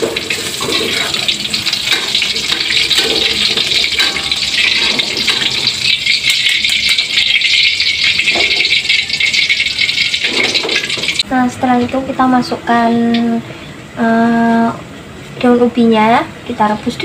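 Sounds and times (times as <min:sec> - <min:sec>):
metal spatula stirring: 0:00.0 - 0:11.2
hot oil sizzling in a wok: 0:00.0 - 0:11.3.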